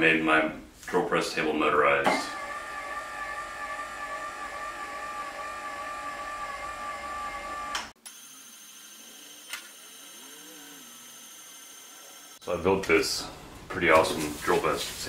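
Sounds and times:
electric motor whine: 2.3s - 12.4s.

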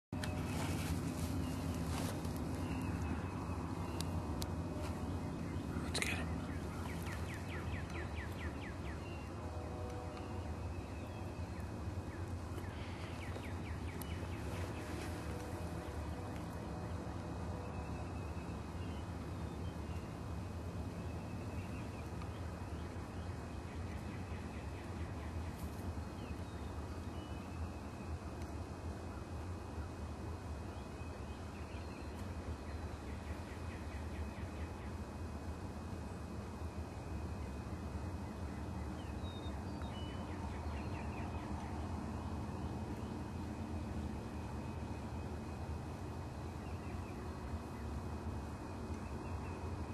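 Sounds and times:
small birds chirping: 0.2s - 9.4s, 10.1s - 17.0s
steady low rumble: 0.2s - 49.9s.

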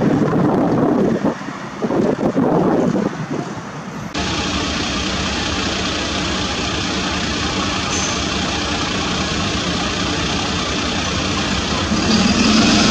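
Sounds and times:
truck engine idling: 4.1s - 12.9s.

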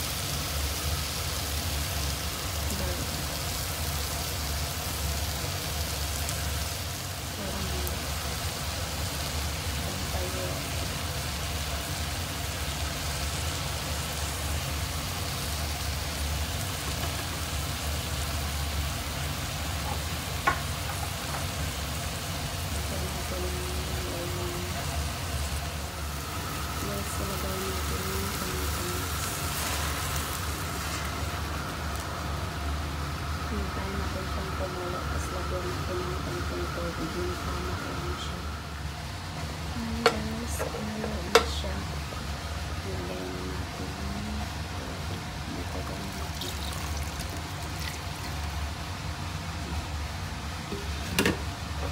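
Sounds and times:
chicken sizzling in a pot: 0.0s - 33.8s, 45.2s - 51.9s.

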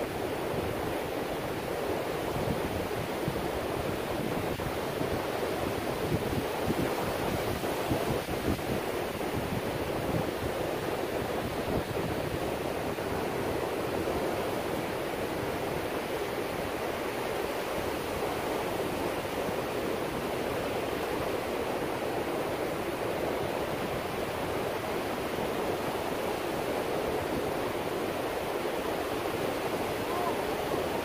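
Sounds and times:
ocean surf breaking: 22.6s - 31.0s.

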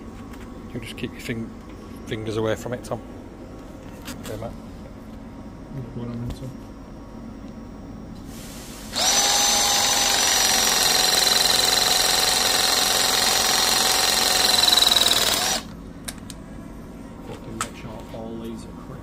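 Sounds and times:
press tool motor whining: 8.9s - 15.8s.

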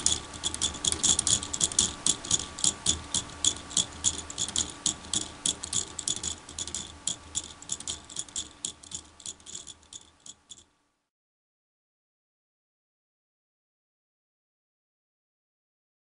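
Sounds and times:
plastic clock ticking: 0.0s - 10.7s.

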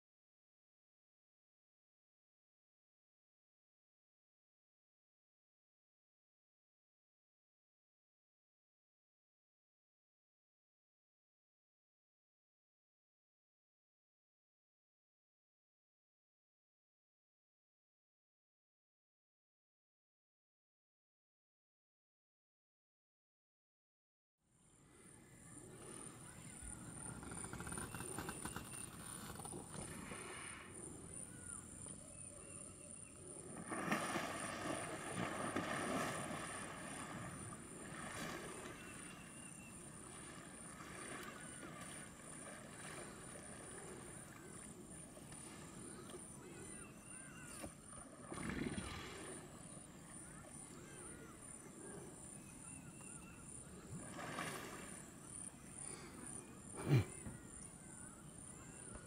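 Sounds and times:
small bird chirps: 45.9s - 47.8s.

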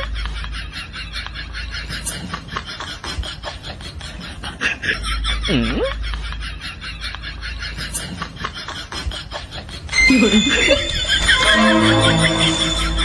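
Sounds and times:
comedy background track ticks: 9.9s - 13.0s
swooping cartoon sound effect: 9.9s - 13.0s.

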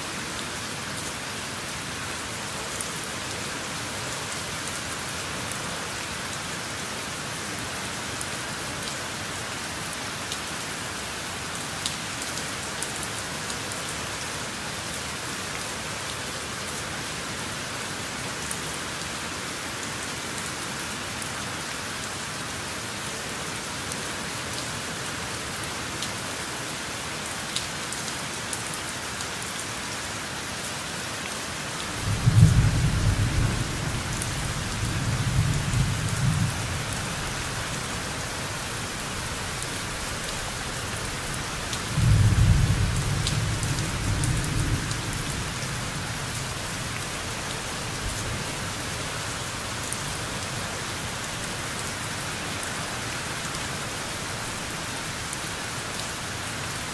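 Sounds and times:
steady rain: 0.0s - 56.9s
low rumbles of thunder: 32.0s - 37.0s, 42.0s - 45.4s.

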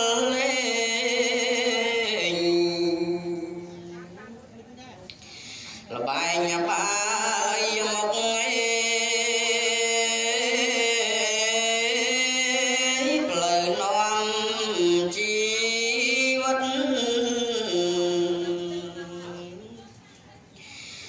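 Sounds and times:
man chanting through sound system: 0.0s - 4.2s, 5.9s - 19.7s.

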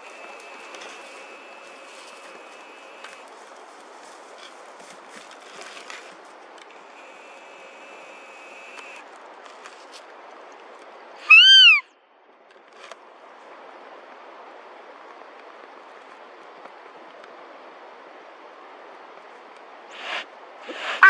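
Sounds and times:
faint steady hiss: 0.0s - 21.0s
deer call bleat: 11.3s - 11.8s.

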